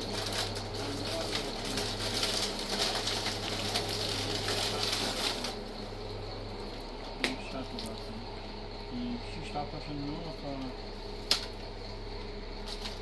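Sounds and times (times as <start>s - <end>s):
plastic bags rustling: 0.0s - 6.1s
steady low hum: 0.0s - 13.0s.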